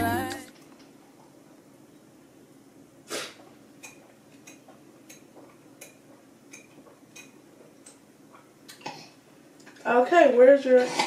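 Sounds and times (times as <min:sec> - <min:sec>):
low room noise: 0:00.0 - 0:11.0.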